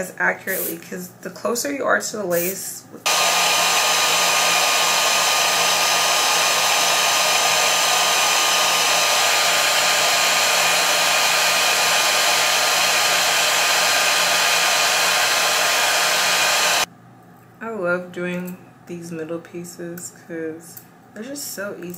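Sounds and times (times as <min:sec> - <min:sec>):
hair dryer blowing: 0:03.0 - 0:16.9.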